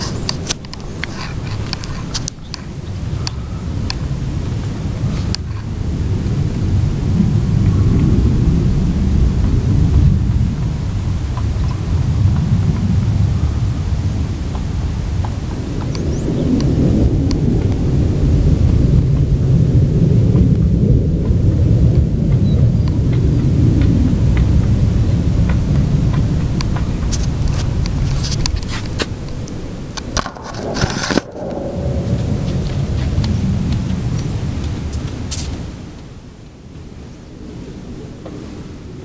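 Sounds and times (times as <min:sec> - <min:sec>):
deep rumbling drone: 0:00.0 - 0:38.1.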